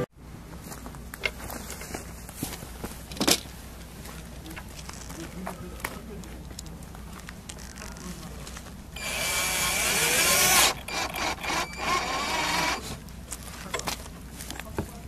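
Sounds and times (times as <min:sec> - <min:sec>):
cordless drill whining: 0:09.0 - 0:13.0.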